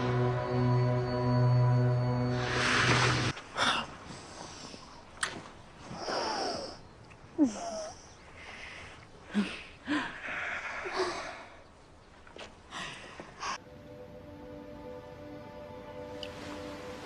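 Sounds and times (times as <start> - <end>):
held music chord: 0.0 - 3.3, 13.6 - 17.0.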